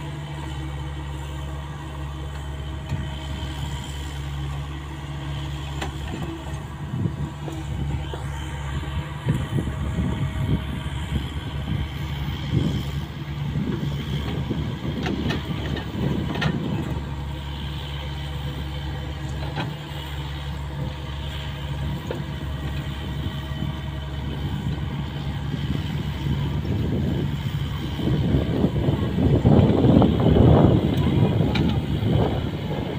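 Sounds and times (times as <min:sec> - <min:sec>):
excavator diesel engine running: 0:00.0 - 0:32.9.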